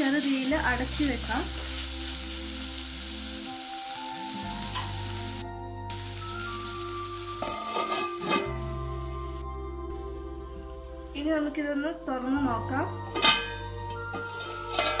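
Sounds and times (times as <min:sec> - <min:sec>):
food sizzling in oil: 0:00.0 - 0:15.0
metal lid clink: 0:07.4 - 0:08.5, 0:13.2 - 0:13.7, 0:14.7 - 0:15.0.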